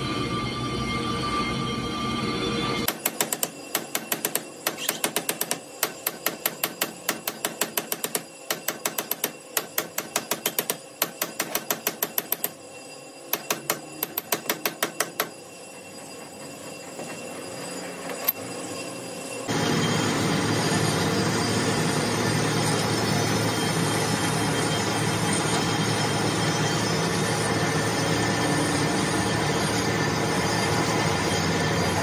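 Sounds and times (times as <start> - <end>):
hammer striking metal: 2.9 - 12.6, 13.3 - 15.4.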